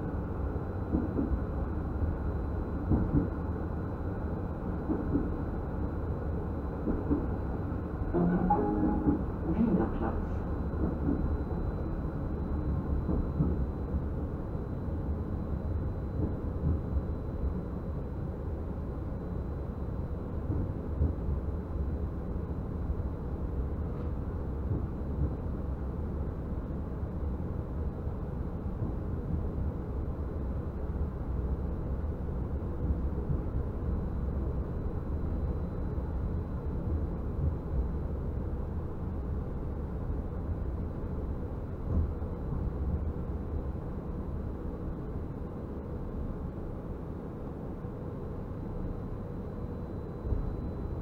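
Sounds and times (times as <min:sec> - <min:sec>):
faint steady whine: 0:00.0 - 0:51.0
tram wheels rumbling: 0:02.8 - 0:03.6, 0:04.5 - 0:14.0.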